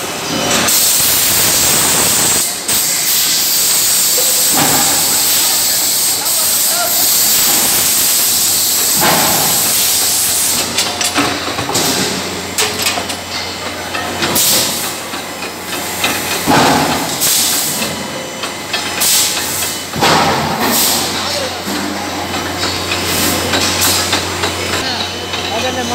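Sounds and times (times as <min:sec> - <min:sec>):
press hissing: 0:00.7 - 0:10.8
knocks and clanks: 0:04.4 - 0:05.6, 0:07.3 - 0:25.5.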